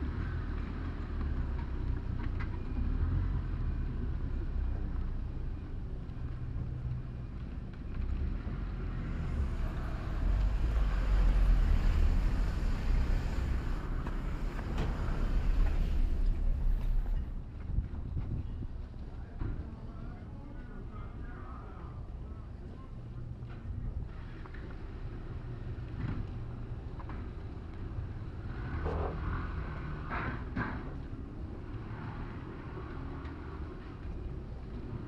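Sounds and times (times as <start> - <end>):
faint outdoor ambience: 0.0 - 35.0
wind buffeting microphone: 10.0 - 19.2.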